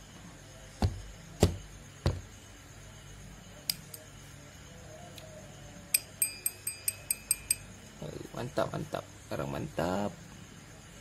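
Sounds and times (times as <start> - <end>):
sharp metallic clicks with ring: 3.6 - 4.1, 5.9 - 7.9.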